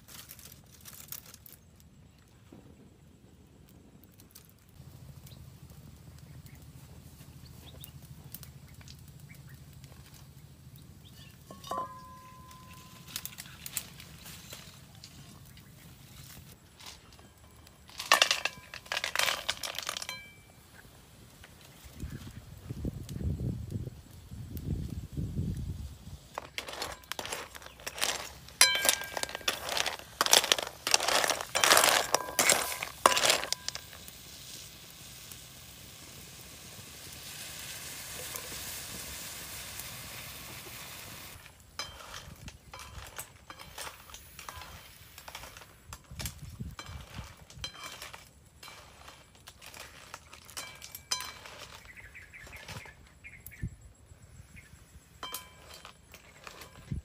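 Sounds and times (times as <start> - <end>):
steady hiss: 4.7 - 56.7
clams clinking in metal wok: 17.8 - 20.4, 26.4 - 34.0, 41.7 - 51.9.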